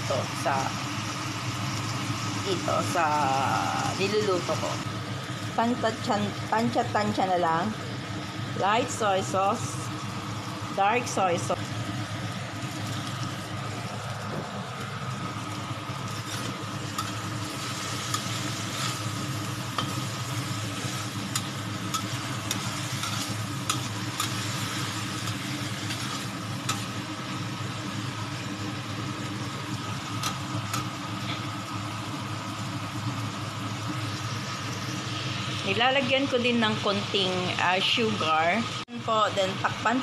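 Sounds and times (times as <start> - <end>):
pork sizzling in a wok: 0.0 - 40.0
steady low hum: 0.0 - 40.0
spatula scraping and clicking on wok: 16.1 - 27.0, 30.2 - 31.5.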